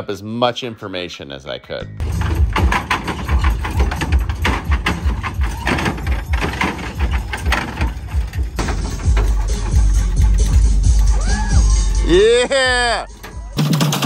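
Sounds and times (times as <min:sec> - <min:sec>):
clicks and clunks: 0:02.0 - 0:11.0, 0:13.1 - 0:14.0.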